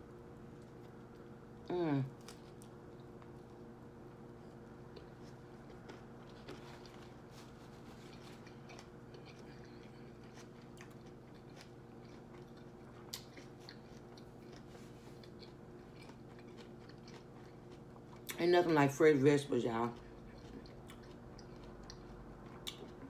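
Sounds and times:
chewing with wet mouth clicks: 2.2 - 7.1, 7.8 - 18.4, 19.8 - 23.0.

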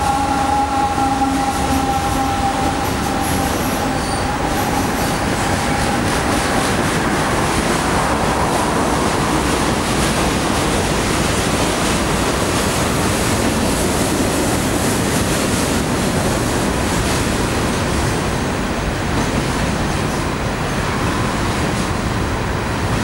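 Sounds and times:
train wheels rolling on rail: 0.0 - 23.0.

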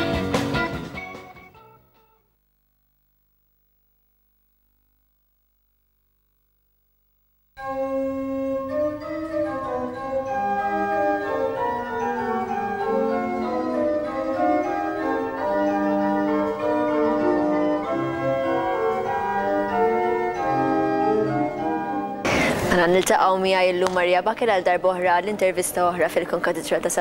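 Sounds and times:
organ playing slow chords: 5.9 - 22.4.

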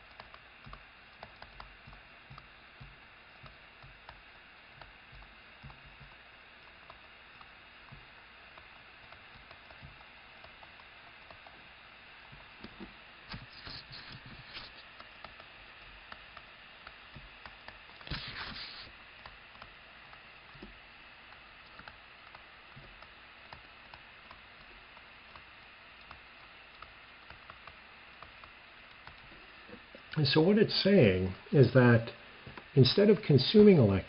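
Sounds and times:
steady background hiss: 0.0 - 34.0
scratchy rustle: 18.0 - 18.9.

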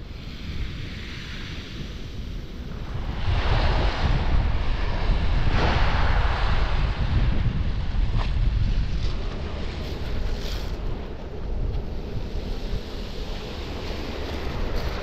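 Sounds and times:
wind buffeting microphone: 0.0 - 15.0
waves washing onto shingle: 12.0 - 15.0.

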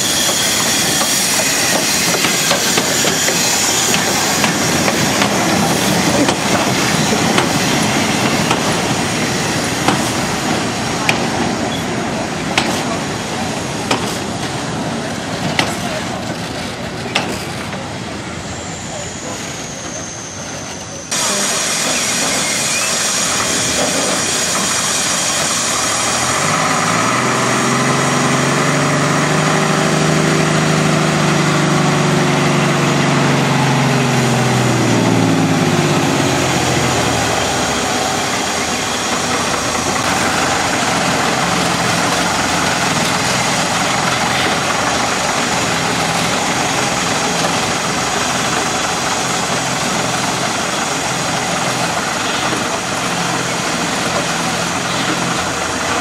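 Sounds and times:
bus engine driving by: 25.5 - 56.0.

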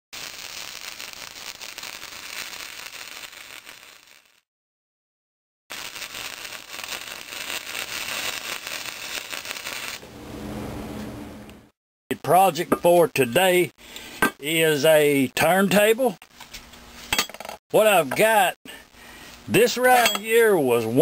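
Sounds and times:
welding arc crackling: 0.2 - 4.4, 5.7 - 10.1.

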